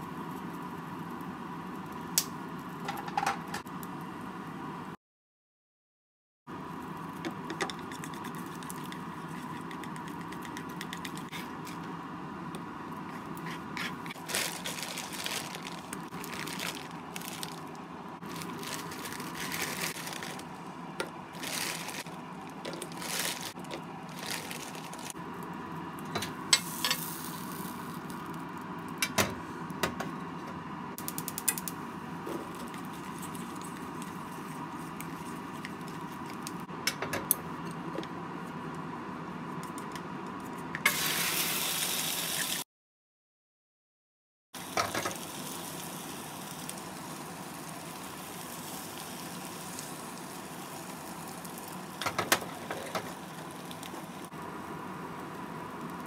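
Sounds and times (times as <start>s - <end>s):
steady background noise: 6.5s - 40.8s.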